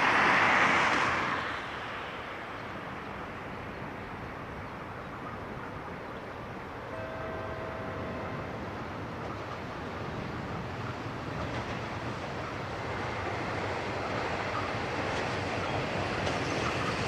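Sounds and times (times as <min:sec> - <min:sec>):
diesel locomotive running: 0:05.1 - 0:17.0.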